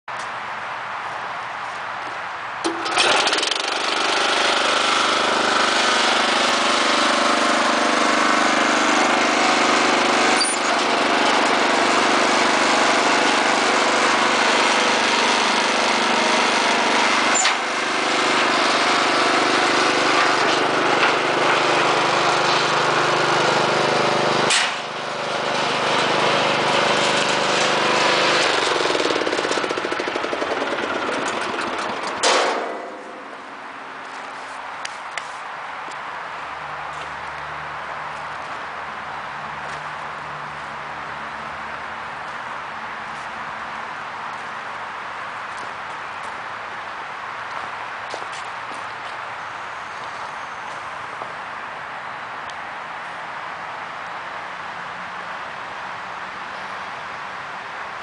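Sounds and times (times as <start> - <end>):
gasoline engine running: 2.7 - 33.8.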